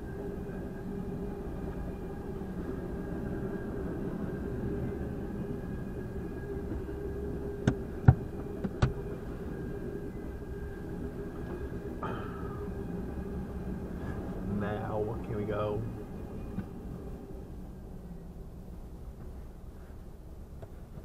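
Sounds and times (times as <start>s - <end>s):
freight train rumbling past: 0.0s - 21.0s.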